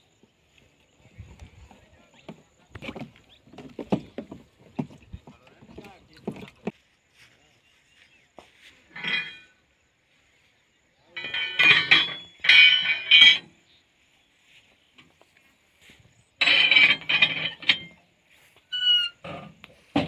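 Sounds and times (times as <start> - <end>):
metal parts clinking and clanking: 8.9 - 9.6, 11.1 - 13.6, 16.4 - 18.1.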